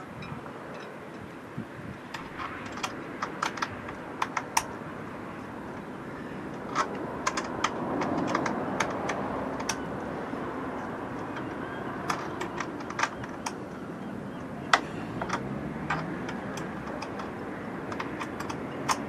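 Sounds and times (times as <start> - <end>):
steady background noise: 0.0 - 19.0
sharp clicks and light taps: 14.7 - 19.0.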